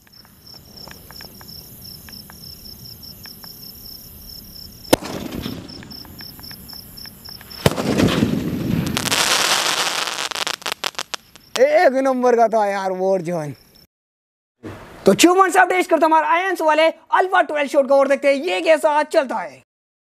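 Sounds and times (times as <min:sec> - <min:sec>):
crickets chirping: 0:00.0 - 0:13.9
firework crackling: 0:03.2 - 0:11.6
firework bang: 0:04.9 - 0:06.8, 0:07.4 - 0:11.6
faint firework pops: 0:04.9 - 0:11.6.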